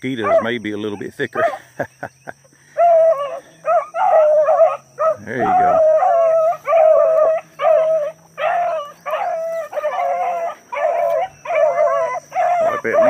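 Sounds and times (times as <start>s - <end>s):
hounds baying: 0.0s - 1.9s, 2.6s - 13.0s.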